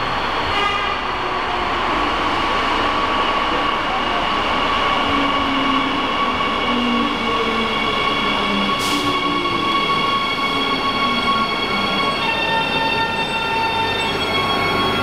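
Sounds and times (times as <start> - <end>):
high-pitched brake squeals: 7.8 - 15.0
brief air hiss: 8.8 - 9.2.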